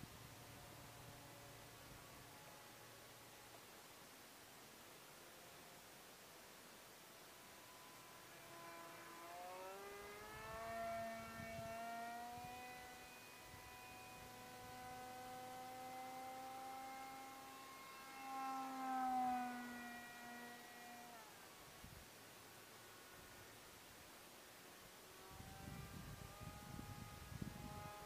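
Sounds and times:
model jet motor whining: 7.2s - 21.6s, 25.0s - 28.0s.

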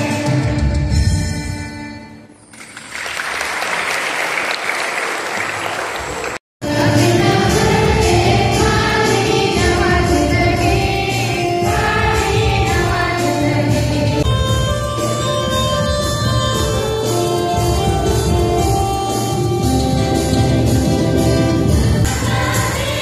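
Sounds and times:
people clapping: 2.5s - 6.4s
choir singing a hymn: 6.6s - 14.3s, 21.6s - 23.0s.

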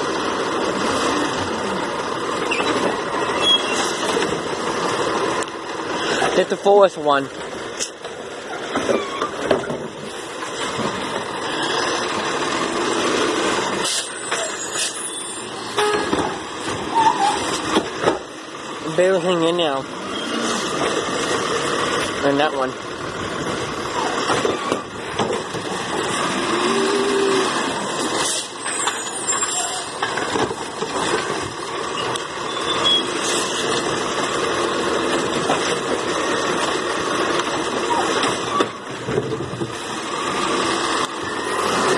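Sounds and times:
garbage truck diesel engine: 0.0s - 41.9s.

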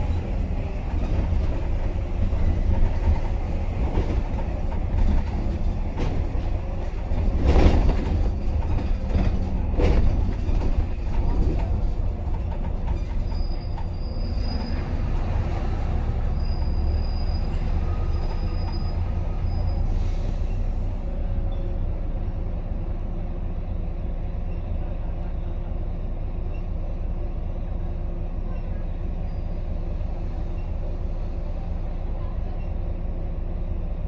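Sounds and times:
bus diesel engine rumbling: 0.0s - 34.0s
faint high squeals: 13.0s - 15.3s, 16.2s - 20.6s.

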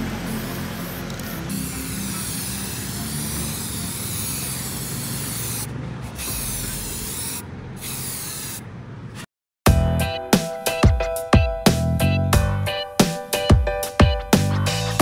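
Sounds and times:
aerosol spray can hissing: 0.0s - 8.6s.

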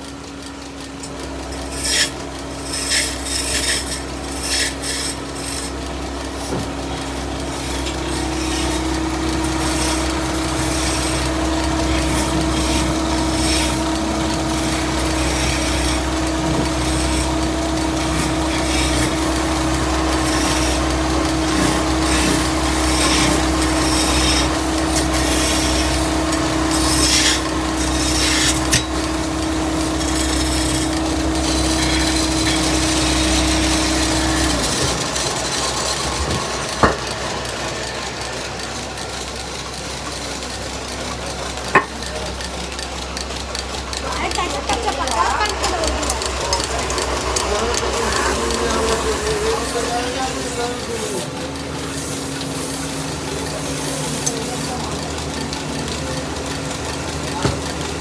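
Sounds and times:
wood lathe humming: 0.0s - 58.0s
chisel scraping spinning wood: 0.9s - 58.0s.

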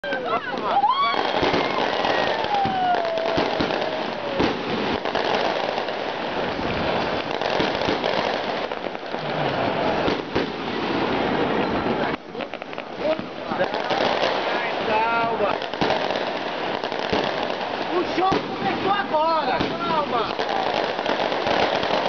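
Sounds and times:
firecrackers crackling: 0.0s - 22.0s
fireworks bangs: 0.0s - 22.0s
falling firework whistle: 0.6s - 4.6s.

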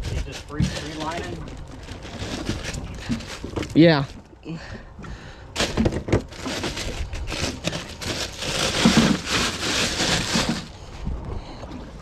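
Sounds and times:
plastic bag crinkling: 0.0s - 3.8s, 5.6s - 10.8s
crushed ice crunching: 0.0s - 4.1s, 5.6s - 10.8s.

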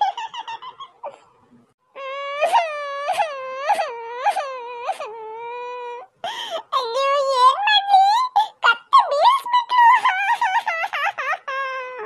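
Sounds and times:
cartoon voice crying: 2.0s - 6.1s, 6.8s - 12.0s
speech: 6.7s - 10.7s.

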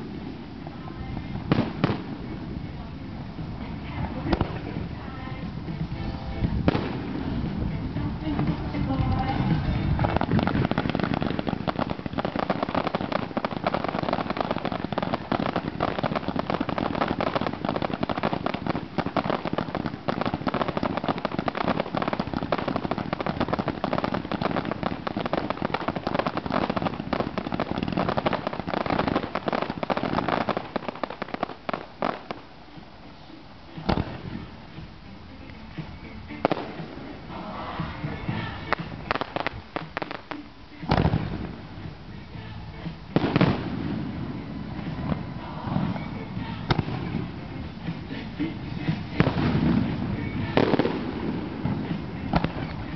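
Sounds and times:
fireworks barrage: 0.0s - 52.9s
firework sharp bang: 6.4s - 7.6s, 43.2s - 44.2s.

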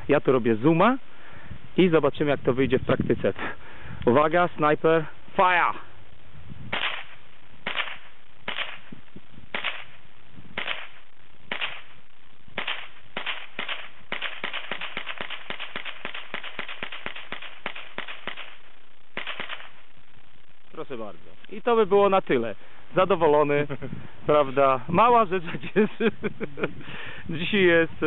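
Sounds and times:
gunshots: 6.7s - 8.9s, 9.5s - 10.0s, 10.6s - 12.0s, 12.6s - 19.9s.

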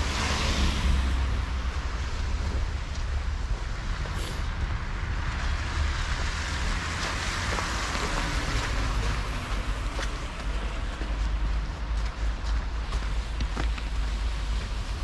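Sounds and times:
low street rumble: 0.0s - 15.0s
vehicle tyres passing: 0.0s - 15.0s
footsteps in snow: 9.5s - 15.0s.

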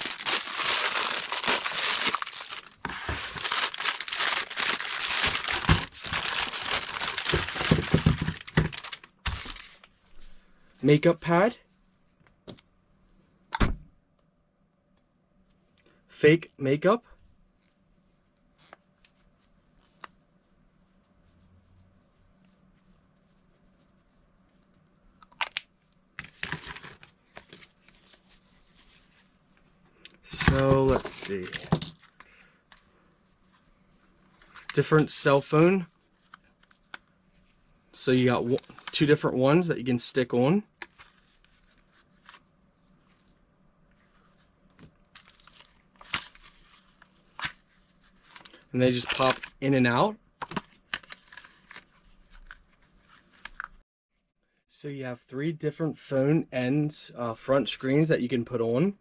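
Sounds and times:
plastic pieces clattering on table: 0.0s - 9.7s
faint plastic rustling: 0.0s - 13.2s, 17.5s - 39.2s, 40.7s - 49.7s.

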